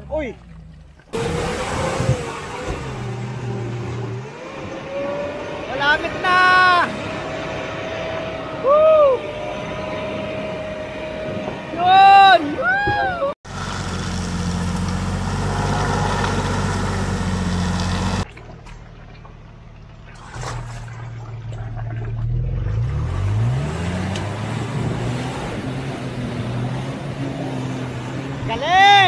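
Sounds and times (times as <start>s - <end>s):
road or wind noise: 0.0s - 29.0s
engine revving: 1.1s - 12.5s, 13.5s - 18.3s, 21.6s - 29.0s
vehicle engine running: 13.5s - 28.7s.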